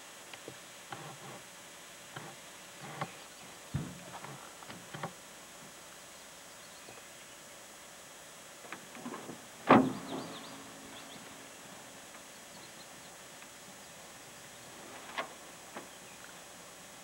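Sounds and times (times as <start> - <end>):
dull thud: 3.7 - 4.2, 9.6 - 10.9
sharp loud knock: 9.7 - 10.6.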